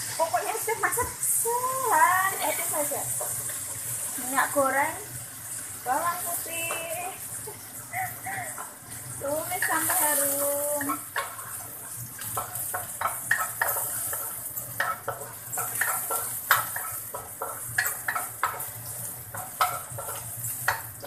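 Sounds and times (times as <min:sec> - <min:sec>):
garlic sizzling in hot oil: 0:00.0 - 0:21.0
wooden spatula scraping a pan: 0:08.6 - 0:20.8.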